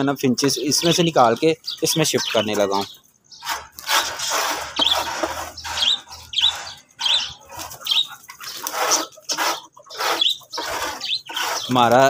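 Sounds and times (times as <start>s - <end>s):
short high bird chirps: 4.6s - 11.8s.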